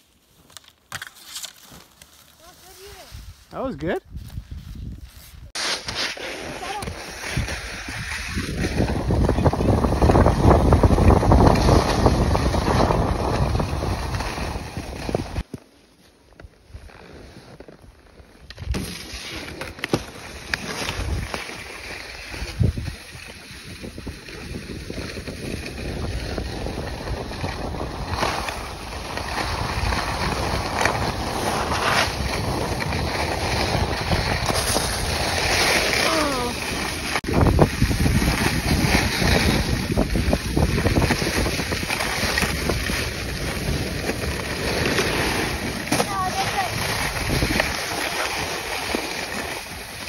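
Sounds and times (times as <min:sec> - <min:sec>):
sliding over packed snow: 0:01.4 - 0:50.0
wind rushing over microphone: 0:03.1 - 0:05.5, 0:06.5 - 0:15.4, 0:22.3 - 0:48.7.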